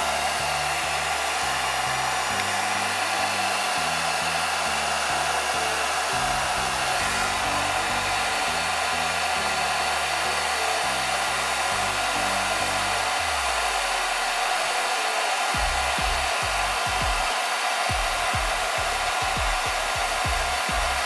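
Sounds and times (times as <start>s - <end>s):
hair dryer blowing: 0.0s - 21.0s
short low thumps: 15.6s - 17.3s, 17.9s - 21.0s.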